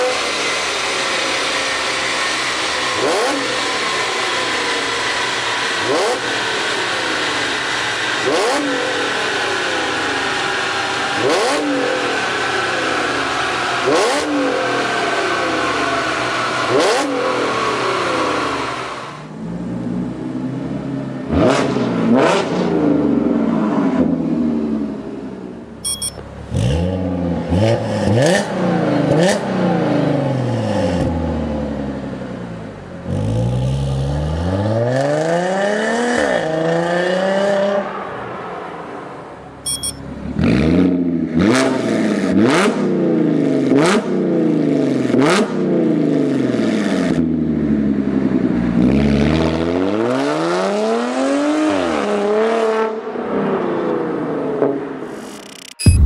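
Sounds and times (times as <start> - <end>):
car engine revving: 0.0 - 18.9, 19.7 - 25.0, 26.0 - 38.2, 39.7 - 45.6.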